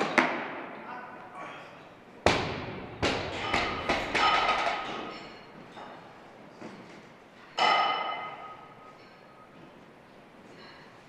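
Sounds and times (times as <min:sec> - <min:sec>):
metallic ringing of bar and plates: 0:07.6 - 0:09.4.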